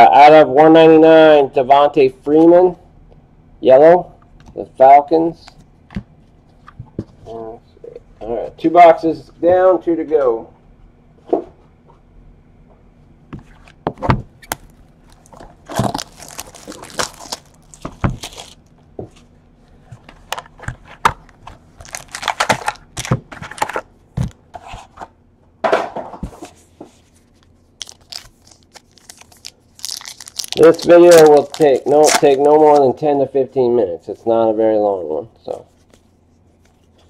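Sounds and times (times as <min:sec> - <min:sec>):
crinkling wrapper: 0:14.5 - 0:18.8, 0:21.2 - 0:23.8, 0:27.2 - 0:32.9.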